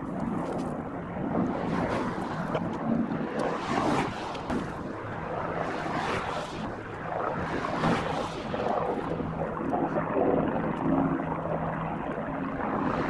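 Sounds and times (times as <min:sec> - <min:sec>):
distant helicopter drone: 0:00.0 - 0:13.0
wind buffeting microphone: 0:00.0 - 0:13.0.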